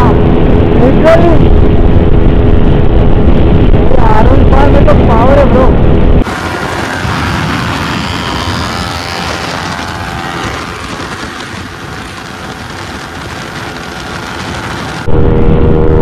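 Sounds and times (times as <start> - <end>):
wind noise: 0.0 - 16.0
motorcycle engine running: 6.2 - 15.4.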